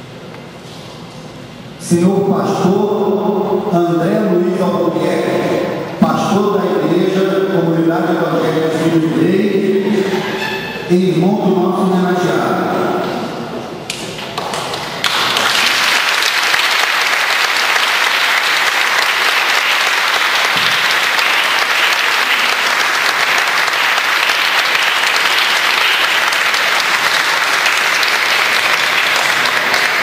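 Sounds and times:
audience applauding: 14.0s - 30.0s.

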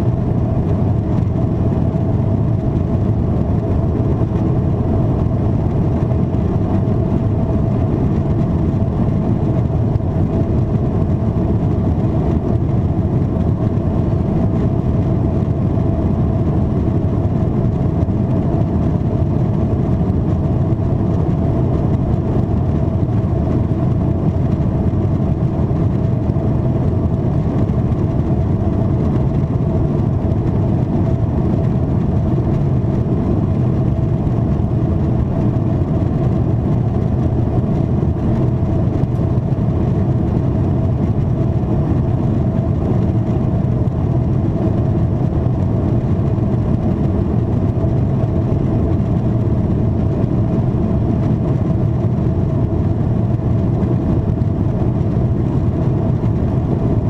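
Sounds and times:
jet engines hum and rumble: 0.0s - 57.0s.

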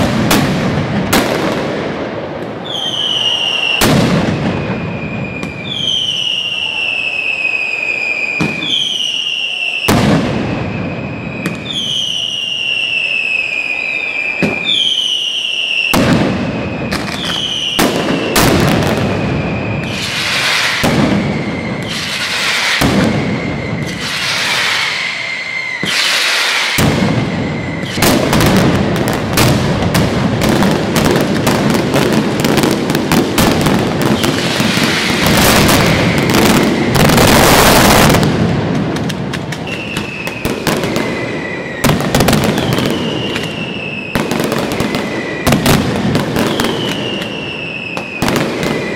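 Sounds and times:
firecrackers banging: 0.0s - 48.9s
falling whistles: 2.6s - 29.1s, 34.0s - 38.2s, 39.6s - 48.9s.

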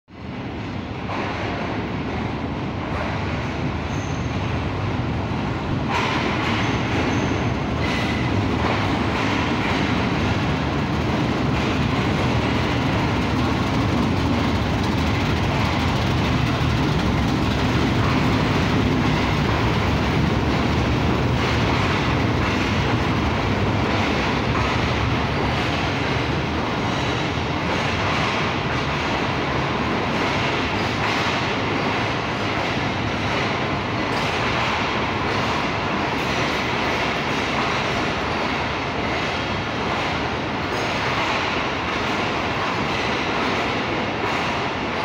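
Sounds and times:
diesel locomotive: 0.1s - 45.0s
train rolling past: 0.1s - 45.0s.

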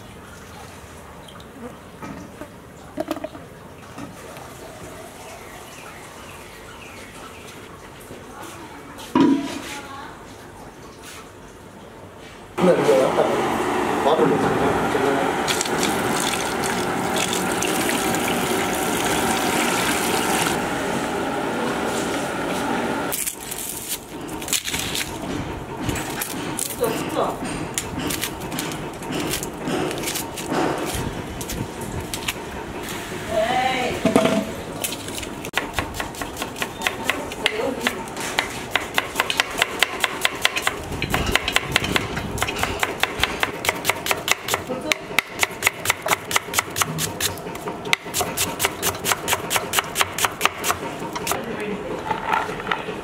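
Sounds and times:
knife chopping on wooden board: 26.2s - 31.0s.

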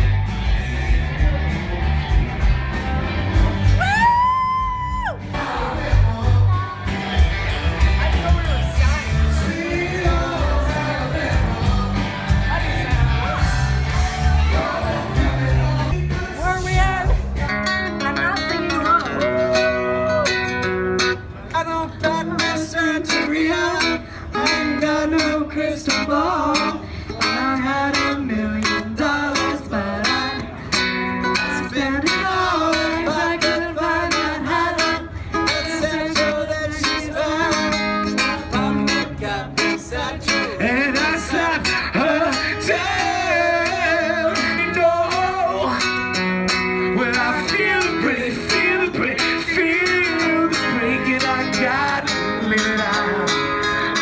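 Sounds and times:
man singing: 8.6s - 17.5s, 21.5s - 30.6s, 31.4s - 46.1s, 46.8s - 54.0s.

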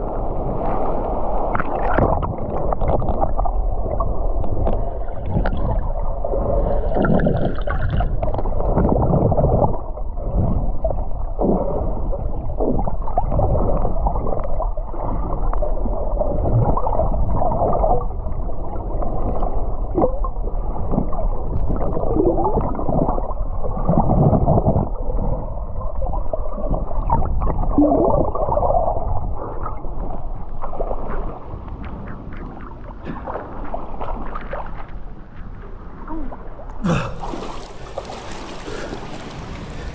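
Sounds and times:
underwater gurgling and sloshing: 0.0s - 39.9s
bubbling surges: 1.3s - 31.2s.

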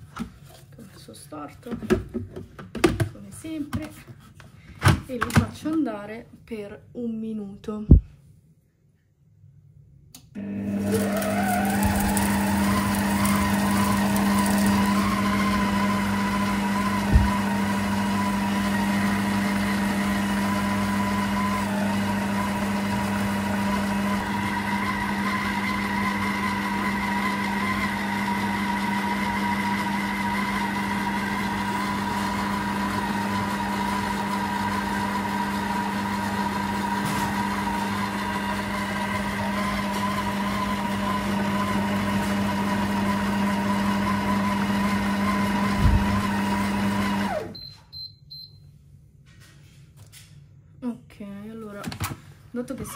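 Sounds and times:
electric mixer motor whining: 10.4s - 47.6s.

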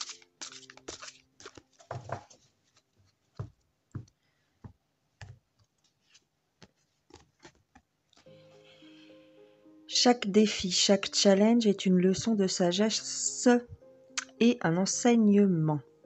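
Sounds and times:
cards tapping and clicking: 0.0s - 2.4s.

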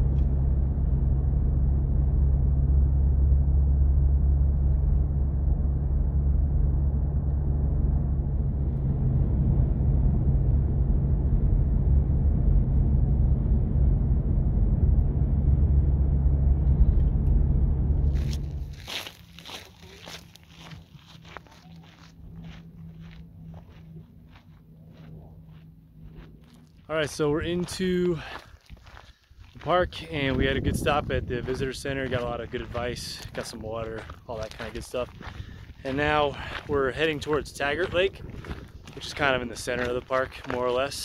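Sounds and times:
car engine and road rumble: 0.0s - 41.0s.

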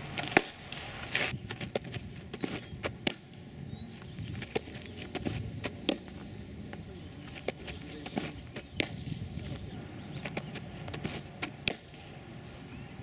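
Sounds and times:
clicks and scuffs on dirt: 0.0s - 3.2s, 3.8s - 13.0s
ball smacking into catcher's mitt: 0.2s - 0.8s, 7.4s - 9.1s, 10.2s - 12.1s.

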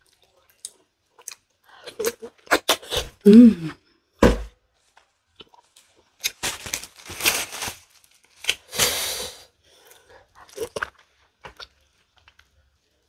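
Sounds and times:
person humming with full mouth: 3.2s - 3.8s
tissue crumpling: 6.2s - 8.8s.

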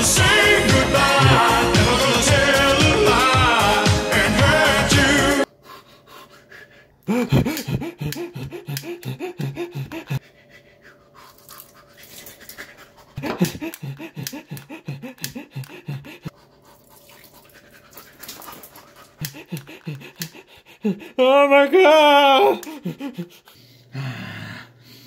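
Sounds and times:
man panting: 5.5s - 16.8s, 18.2s - 21.2s, 21.8s - 25.0s.

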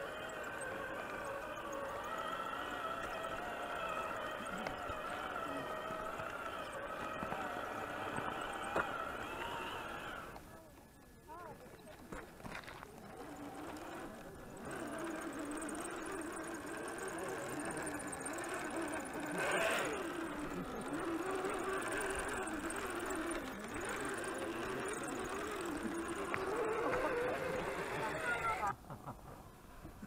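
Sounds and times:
electric motor whining: 0.0s - 10.5s, 12.1s - 28.8s.

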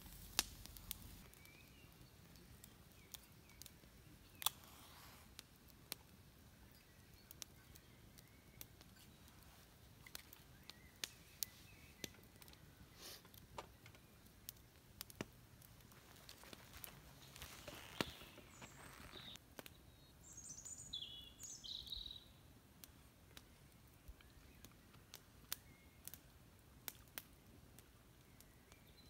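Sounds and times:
soft hiss: 0.0s - 26.4s
short bird chirps: 17.2s - 22.3s.

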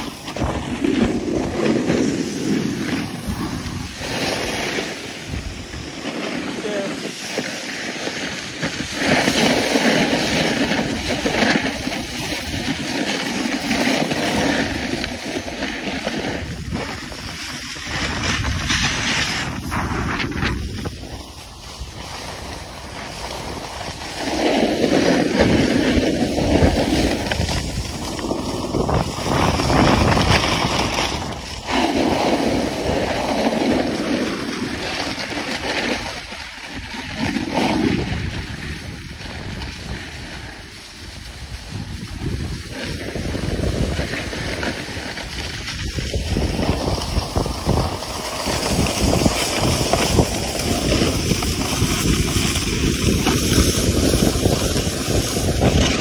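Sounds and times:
snowboard scraping snow: 0.0s - 56.0s
wind on microphone: 0.0s - 56.0s.

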